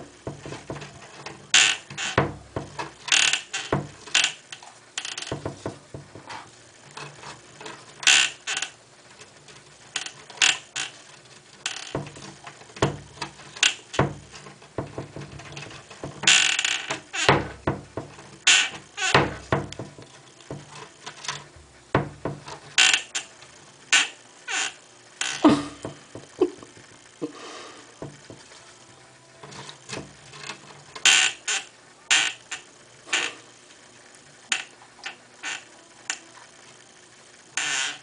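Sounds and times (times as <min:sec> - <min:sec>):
hamster scratching wooden door: 0:00.0 - 0:23.3, 0:29.4 - 0:33.4
door knocking against frame: 0:00.2 - 0:01.0, 0:01.8 - 0:02.9, 0:03.7 - 0:04.0, 0:05.3 - 0:06.4, 0:11.9 - 0:13.3, 0:13.9 - 0:16.4, 0:17.2 - 0:18.2, 0:19.0 - 0:20.8, 0:21.9 - 0:22.6, 0:25.5 - 0:26.6, 0:28.0 - 0:28.5.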